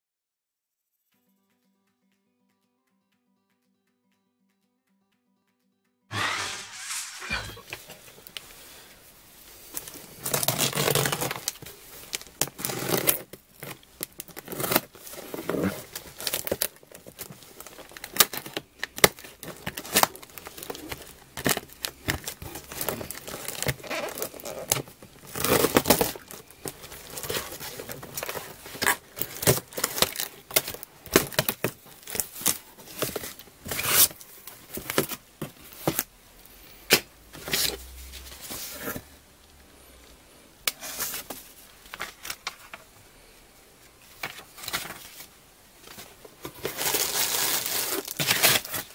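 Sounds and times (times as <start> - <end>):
packing tape tearing: 10.3 - 16.7, 27.1 - 34.2, 46.5 - 48.9.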